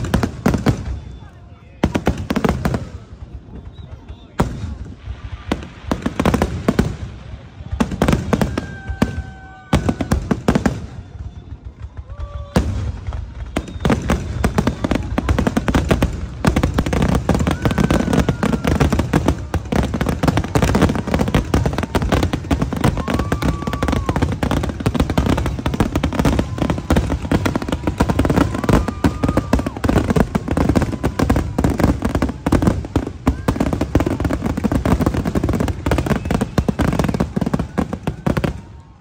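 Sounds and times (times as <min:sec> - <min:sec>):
fireworks bangs and crackle: 0:00.0 - 0:39.0.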